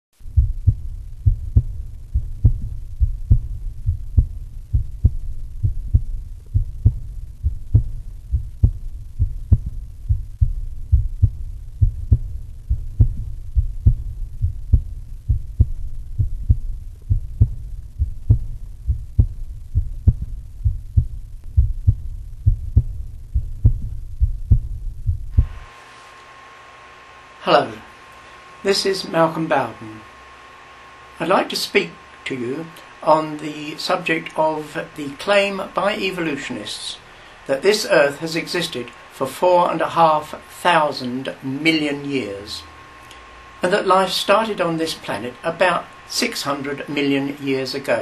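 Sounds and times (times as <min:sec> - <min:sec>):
heartbeat thumps: 0:00.2 - 0:25.7.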